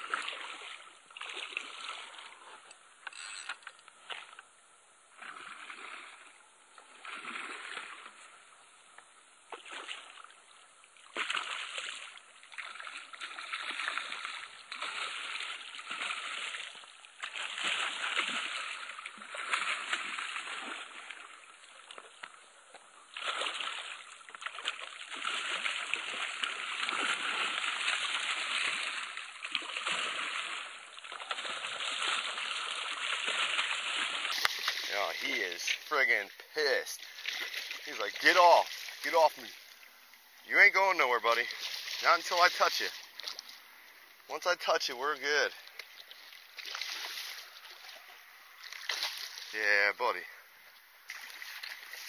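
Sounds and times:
fish thrashing and splashing: 0:00.0 - 0:02.4, 0:11.0 - 0:22.4, 0:23.1 - 0:40.3, 0:41.4 - 0:43.9, 0:45.6 - 0:49.6, 0:51.1 - 0:52.0.

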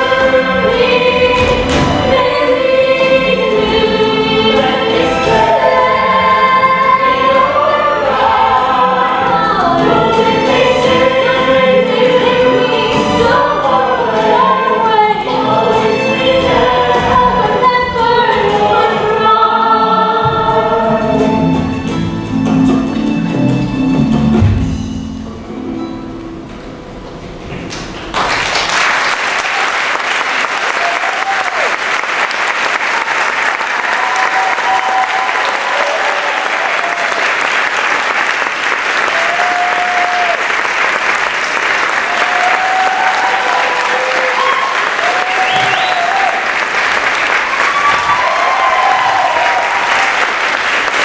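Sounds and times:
music: 0:00.0 - 0:28.7
audience applauding: 0:27.7 - 0:51.0
cheers and whoops: 0:30.6 - 0:31.8, 0:33.7 - 0:37.4, 0:39.0 - 0:40.5, 0:42.0 - 0:46.5, 0:47.4 - 0:50.4.

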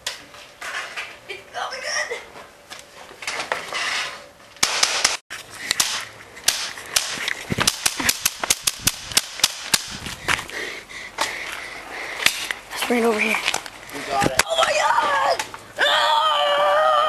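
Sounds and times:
nail gun firing: 0:04.6 - 0:05.2, 0:05.8 - 0:10.0.

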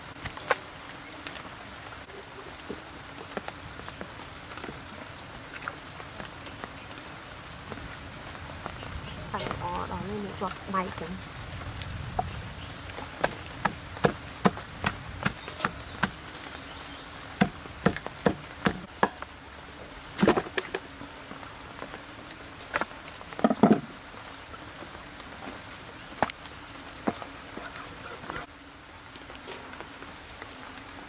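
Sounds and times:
cleaver chopping ribs on wood: 0:13.2 - 0:16.2, 0:17.4 - 0:19.2.

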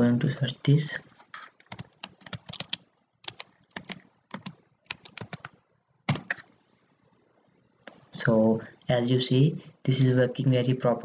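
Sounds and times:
keyboard typing clicks: 0:01.6 - 0:06.5.

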